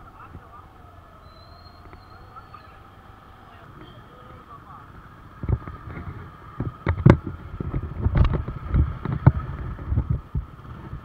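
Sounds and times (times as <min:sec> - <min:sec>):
wind buffeting microphone: 0:05.0 - 0:11.0.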